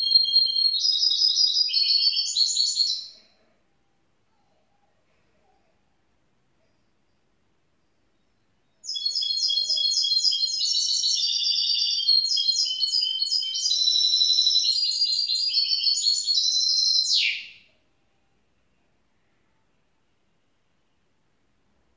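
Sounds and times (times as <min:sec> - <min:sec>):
bird singing chirps and trills: 0:00.0 - 0:03.2, 0:07.8 - 0:17.6.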